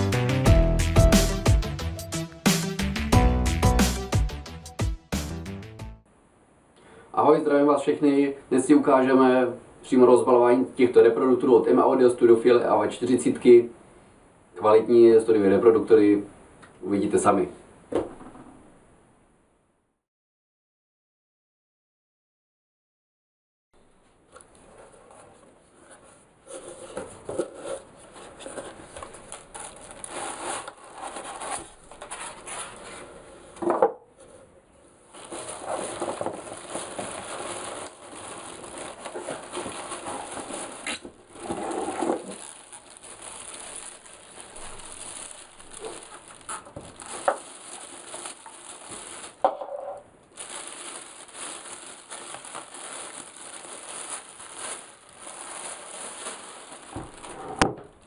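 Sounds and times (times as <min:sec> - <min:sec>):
cardboard and plastic rustling: 0:24.4 - 0:33.8, 0:35.1 - 0:58.0.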